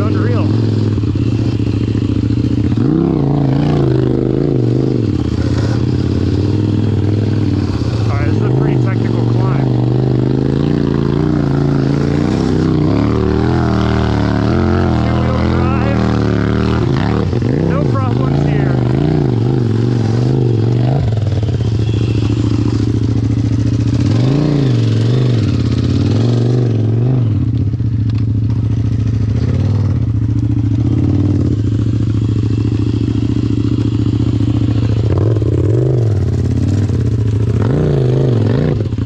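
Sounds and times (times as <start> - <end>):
small vehicle engine revving: 0.0 - 39.0.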